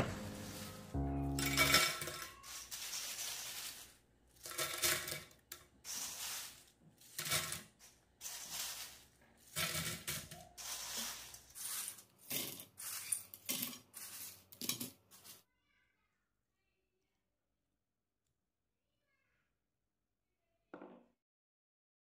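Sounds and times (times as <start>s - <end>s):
chips clattering on ceramic plate: 1.4s - 15.4s.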